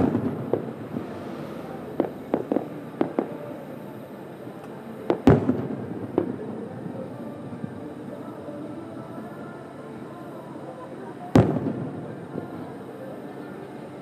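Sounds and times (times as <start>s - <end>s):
distant firework bangs: 0.0s - 3.5s.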